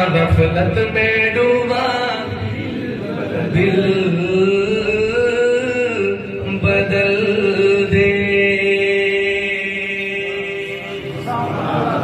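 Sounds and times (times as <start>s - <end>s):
man singing a long note: 3.3s - 11.3s.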